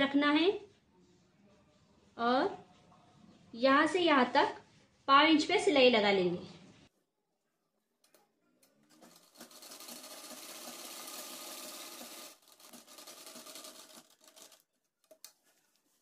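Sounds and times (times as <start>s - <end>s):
sewing machine stitching: 8.8s - 14.7s.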